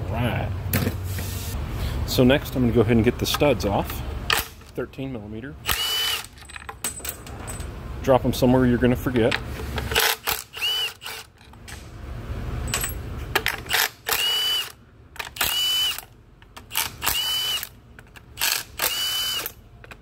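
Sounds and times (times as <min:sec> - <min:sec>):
power tool motor whine: 0:10.3 - 0:11.3, 0:14.1 - 0:14.8, 0:15.4 - 0:16.0, 0:17.0 - 0:17.7, 0:18.5 - 0:19.6.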